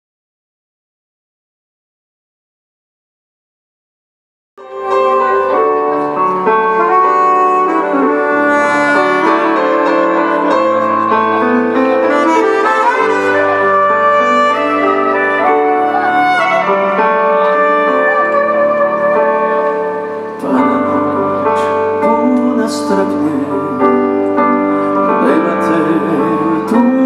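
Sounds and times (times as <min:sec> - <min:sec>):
live band playing: 0:04.6 - 0:27.0
saxophone and brass: 0:04.6 - 0:27.0.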